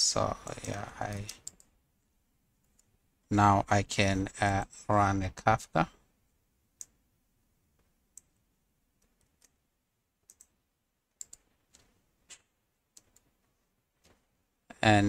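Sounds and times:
computer mouse and keyboard clicks: 0.4 - 1.8, 9.0 - 9.6, 10.2 - 14.2.

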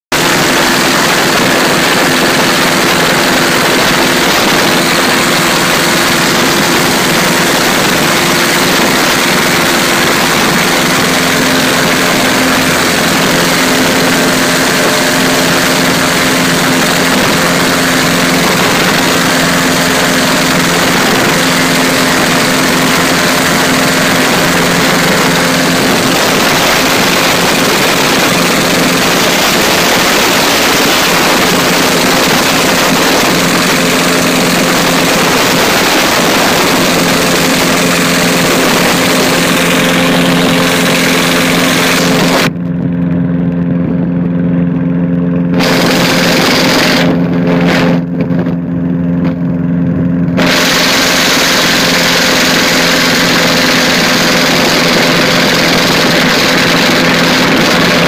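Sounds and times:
light aircraft engine and propeller: 0.0 - 58.0
wind noise over microphone: 0.1 - 58.0.

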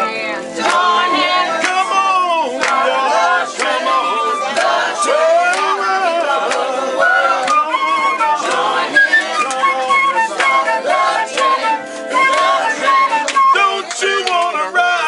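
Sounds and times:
people singing together: 0.0 - 15.0
flute playing held notes: 6.9 - 14.2.

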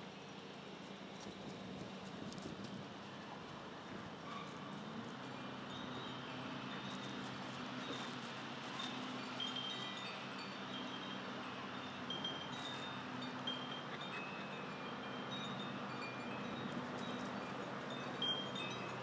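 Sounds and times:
wind chimes tinkling: 5.4 - 19.0.

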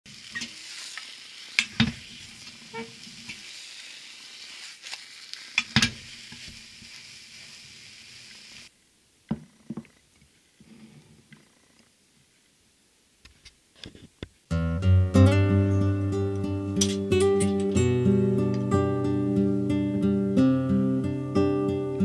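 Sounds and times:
egg mixture sizzling in a pan: 0.1 - 8.7.

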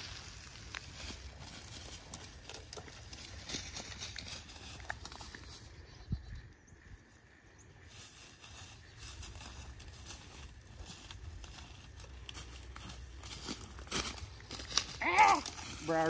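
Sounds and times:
footsteps in brush: 0.0 - 5.8, 7.2 - 16.0
dry leaves and twigs crackling: 0.0 - 16.0
wind rumble on microphone: 5.7 - 7.1.

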